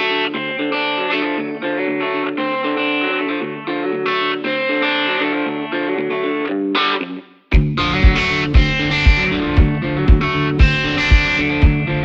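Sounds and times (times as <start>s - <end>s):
guitar music: 0.0s - 12.0s.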